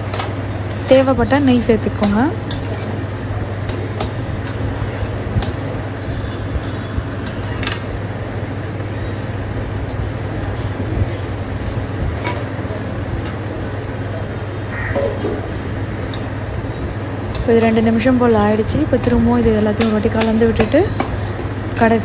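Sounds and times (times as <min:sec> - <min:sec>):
steady low hum: 0:00.0 - 0:22.0.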